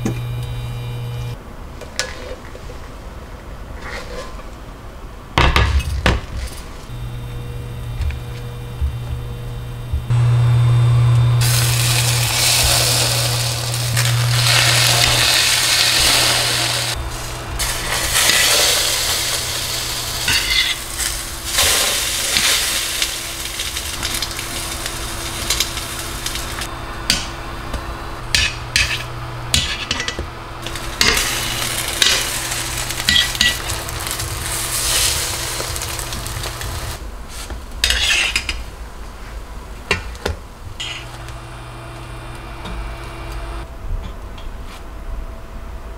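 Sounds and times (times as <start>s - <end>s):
low steady hum: 0.0s - 1.4s, 6.8s - 37.2s
bread sizzling in pan: 6.9s - 26.8s, 30.6s - 37.0s
metal turner scraping pan: 28.3s - 36.9s, 37.8s - 38.5s, 40.8s - 41.2s.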